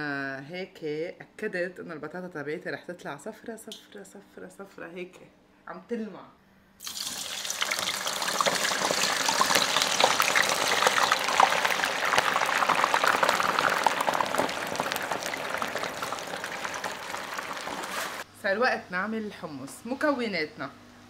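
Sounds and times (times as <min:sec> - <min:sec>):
potatoes frying in hot oil: 0:06.8 - 0:18.2.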